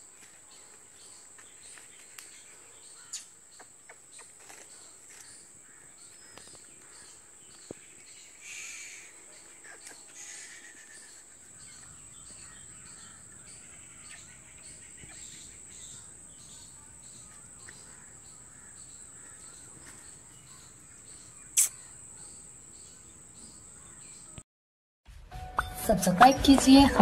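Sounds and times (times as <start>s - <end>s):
birds calling: 0.6s - 24.4s
sharp click: 21.6s - 21.8s.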